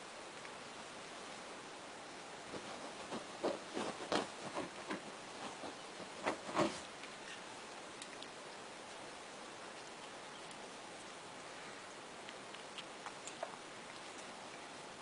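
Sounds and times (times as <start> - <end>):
steady hiss: 0.0 - 15.0
light knocks and rustles: 2.5 - 7.4.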